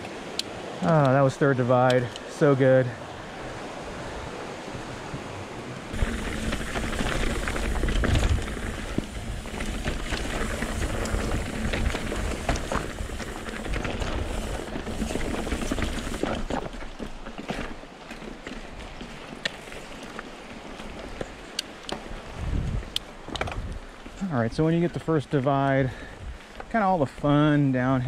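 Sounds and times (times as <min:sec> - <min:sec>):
wind buffeting microphone: 0:03.3 - 0:16.4, 0:22.0 - 0:24.0
tyres on dirt: 0:05.8 - 0:28.0
bike clattering: 0:05.9 - 0:22.1.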